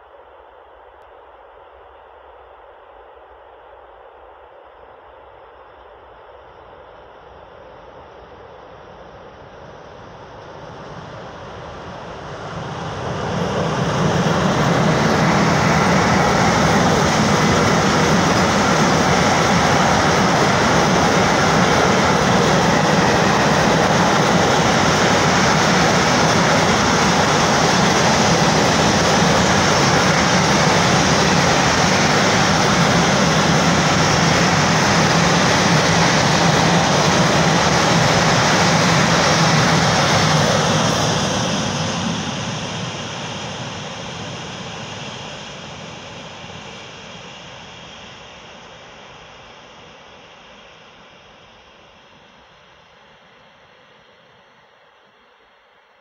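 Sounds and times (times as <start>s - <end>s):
freight train rolling past: 10.4s - 45.4s.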